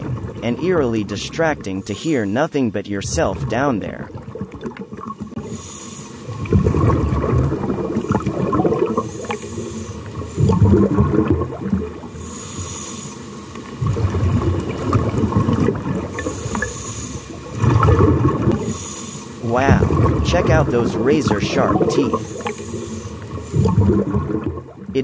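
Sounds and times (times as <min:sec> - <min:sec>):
bubbling exhaust: 0:00.0 - 0:25.0
regulator hissing inhale: 0:05.4 - 0:06.4, 0:09.0 - 0:10.4, 0:12.1 - 0:13.7, 0:16.2 - 0:17.5, 0:18.6 - 0:19.4, 0:22.1 - 0:23.7.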